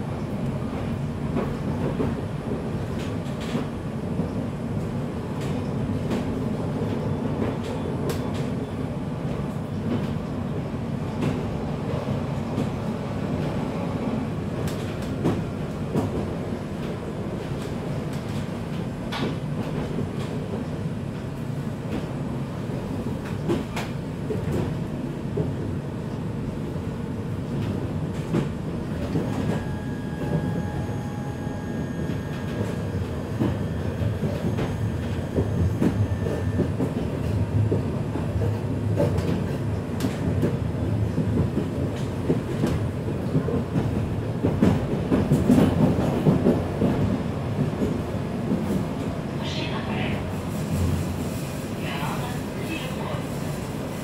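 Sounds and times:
tram wheels rumbling: 0.0 - 54.0.

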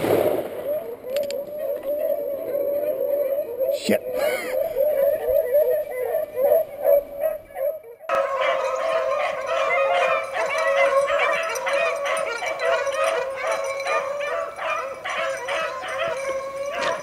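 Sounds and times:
hounds baying: 0.6 - 17.0.

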